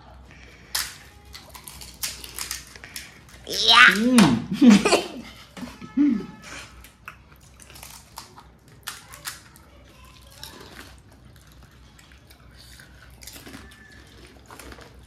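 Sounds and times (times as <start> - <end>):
crisp shells cracking: 0.7 - 4.1, 7.5 - 9.6.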